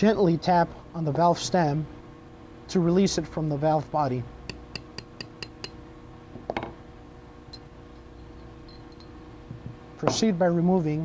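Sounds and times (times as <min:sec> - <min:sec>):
small hammer tapping metal: 0:04.5 - 0:05.8.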